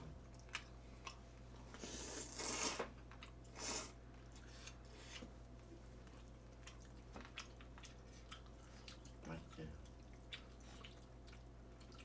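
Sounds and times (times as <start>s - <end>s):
quiet chewing: 0.0s - 12.0s
person slurping noodles: 1.8s - 2.9s.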